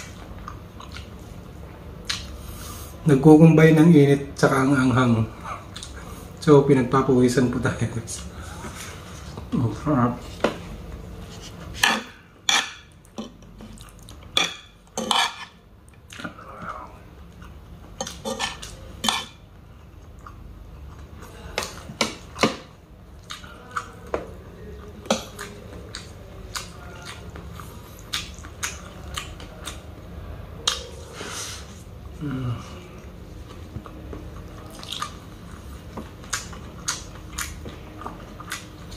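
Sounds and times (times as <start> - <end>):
chewing: 0.0 - 1.2, 12.6 - 22.4, 23.2 - 29.9, 32.8 - 38.9.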